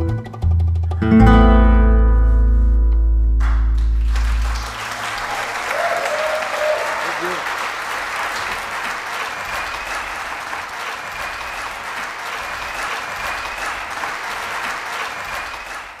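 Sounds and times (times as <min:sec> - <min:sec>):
audience applause: 0:03.4 - 0:16.0.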